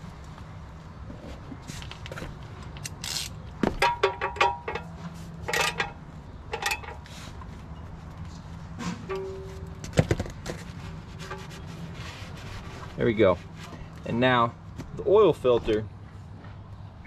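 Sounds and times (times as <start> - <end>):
ratchet wrench clicking: 2.8 - 3.4
metal clinking: 3.8 - 7.1, 9.0 - 9.9.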